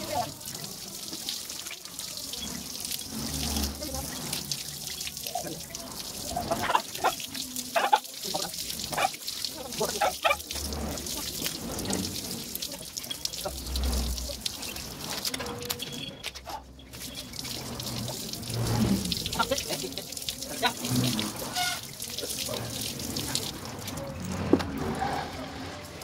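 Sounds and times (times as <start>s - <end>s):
garden hose water spraying: 0.0s - 26.0s
water splashing on wooden slats: 0.0s - 26.0s.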